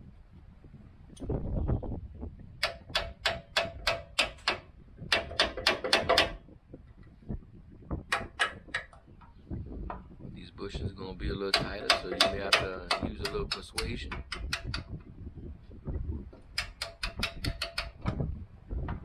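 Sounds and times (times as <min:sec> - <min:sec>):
metal-on-metal taps: 0:02.6 - 0:06.4, 0:08.1 - 0:10.0, 0:11.5 - 0:15.0, 0:16.3 - 0:18.2.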